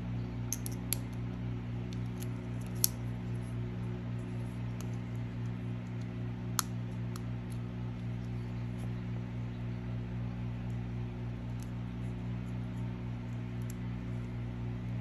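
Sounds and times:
low hum: 0:00.0 - 0:15.0
connectors clicking: 0:00.5 - 0:01.2.

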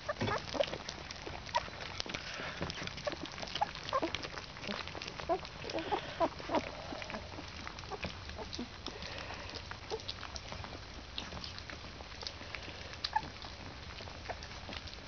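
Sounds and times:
puppy squeaks and grunts: 0:00.0 - 0:02.2, 0:03.0 - 0:08.6, 0:13.1 - 0:13.4
puppies smacking and lapping food: 0:00.0 - 0:15.0.

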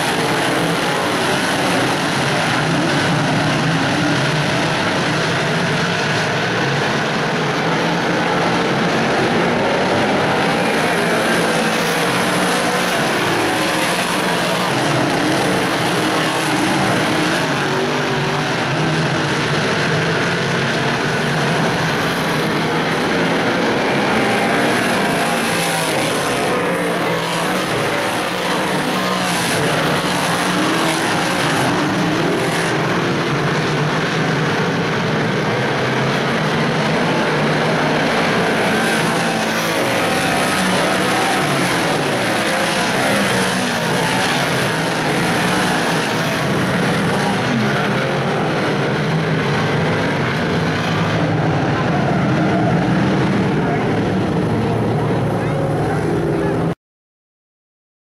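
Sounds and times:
race car engines droning: 0:00.0 - 0:56.8.

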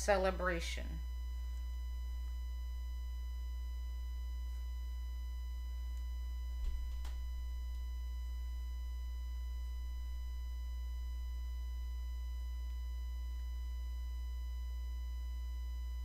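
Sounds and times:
faint high whine: 0:00.0 - 0:16.0
low electrical hum: 0:00.0 - 0:16.0.

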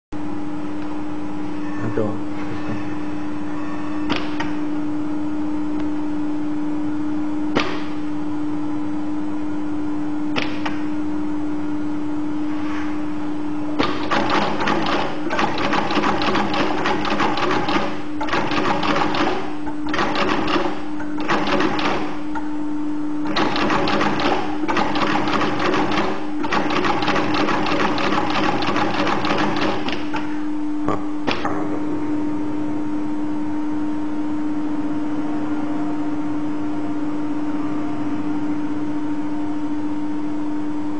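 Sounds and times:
sewing machine needle stitching: 0:13.8 - 0:22.2, 0:23.2 - 0:30.2
sewing machine motor hum: 0:13.8 - 0:22.3, 0:23.2 - 0:30.3.

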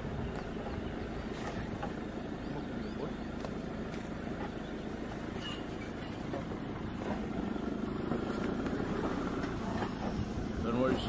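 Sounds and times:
vehicle engine running: 0:00.0 - 0:11.0.

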